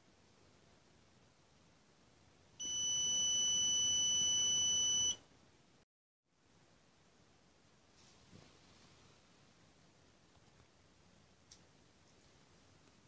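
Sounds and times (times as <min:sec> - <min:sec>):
high-pitched buzzer beep: 0:02.6 - 0:05.2.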